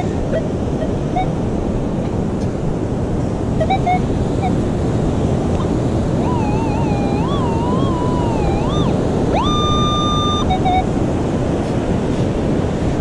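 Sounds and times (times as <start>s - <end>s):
metal detector warbling tone: 0.0s - 1.4s, 3.6s - 4.6s, 5.6s - 10.9s
heavy surf: 0.0s - 13.0s
wind noise: 0.0s - 13.0s.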